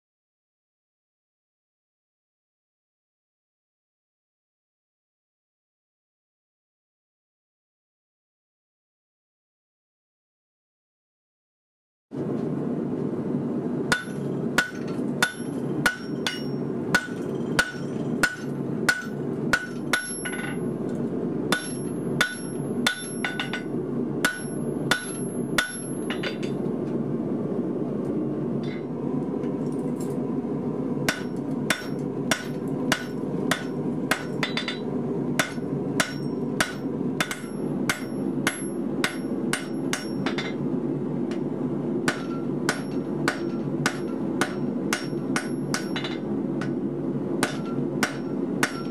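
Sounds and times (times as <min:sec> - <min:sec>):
steady hum: 0:12.2 - 0:48.9
hammer striking steel on anvil: 0:13.9 - 0:26.7, 0:28.6 - 0:28.9, 0:31.1 - 0:40.6, 0:41.3 - 0:48.9.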